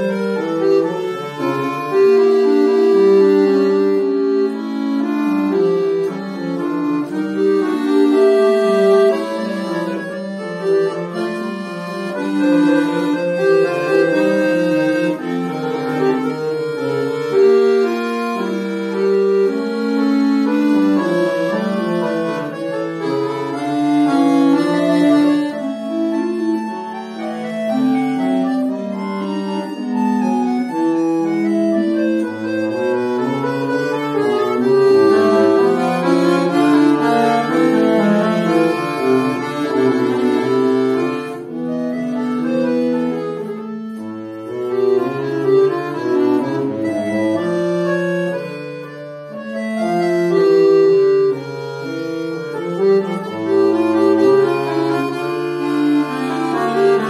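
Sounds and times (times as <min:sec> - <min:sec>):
accordion bass line: 0:00.0 - 0:57.0
accordion melody: 0:00.0 - 0:57.0.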